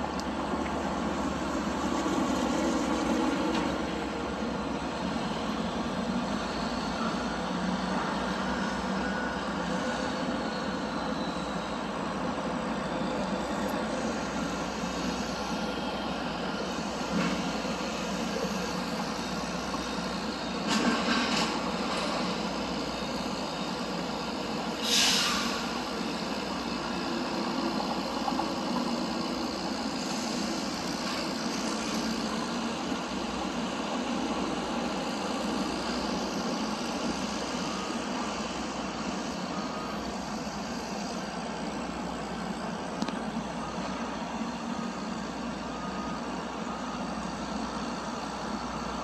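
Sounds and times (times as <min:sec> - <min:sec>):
road traffic rumble: 0:00.0 - 0:49.0
hiss of released air: 0:24.7 - 0:27.7.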